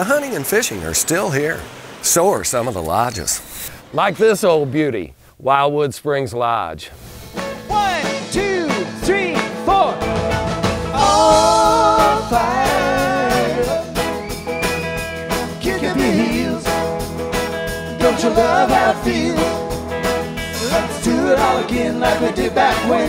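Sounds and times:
country rock band playing: 7.2 - 23.0
voices singing in harmony: 10.9 - 14.4, 15.3 - 17.0, 17.9 - 23.0.

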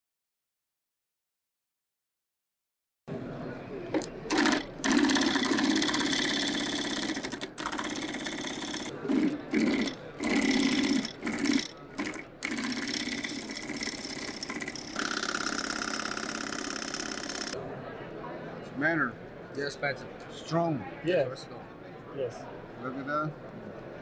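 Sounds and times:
sewing machine stitching: 4.3 - 17.6.

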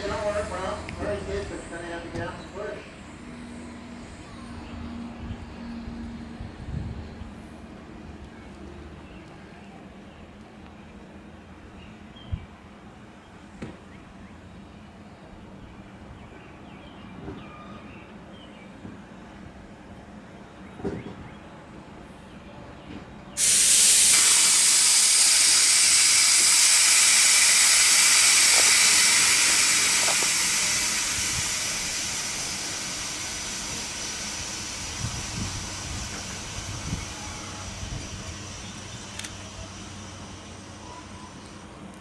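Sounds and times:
steam locomotive venting steam: 0.0 - 7.0, 23.4 - 42.0.

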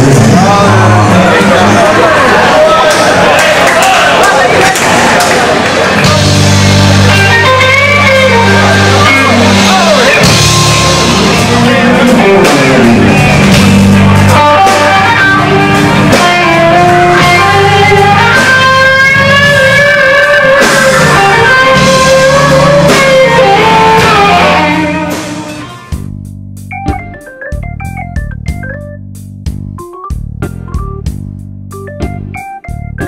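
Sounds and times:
bass guitar: 0.0 - 3.4, 4.8 - 33.0
drums: 0.0 - 33.0
electric guitar solo: 5.9 - 25.9
organ tune: 5.9 - 33.0.

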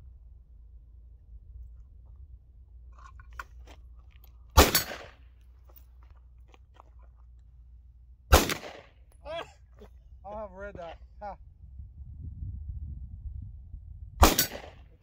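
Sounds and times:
pistol shots: 4.6 - 5.2, 8.3 - 9.0, 14.2 - 14.9.

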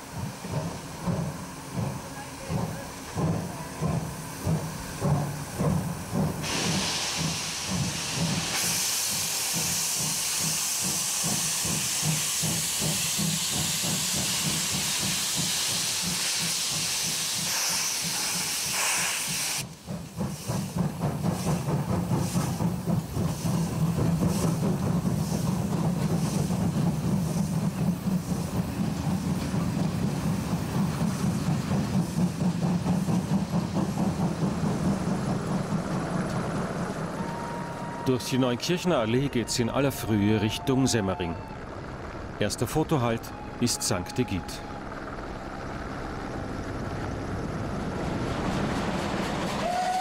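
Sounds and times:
steam locomotive exhaust chuffs: 0.0 - 40.8, 41.5 - 50.0
loud hiss of escaping steam: 2.9 - 35.8.

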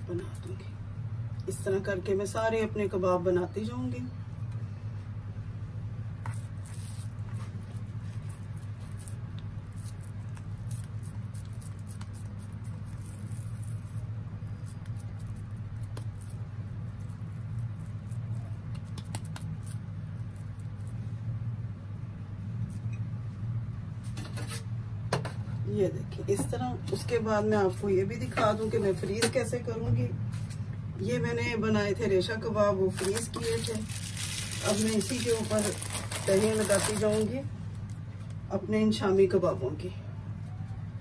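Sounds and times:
steady low hum: 0.0 - 41.0
hands patting and squishing mixture: 18.2 - 20.8.

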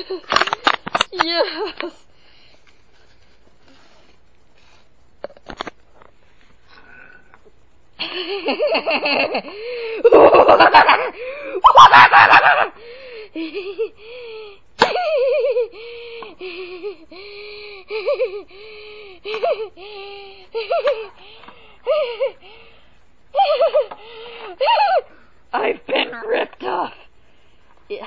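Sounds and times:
person laughing loudly: 8.0 - 12.8, 23.4 - 25.1.

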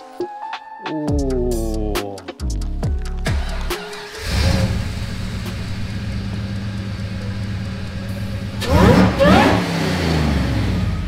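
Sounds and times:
car engine idling and revving: 2.8 - 11.0.

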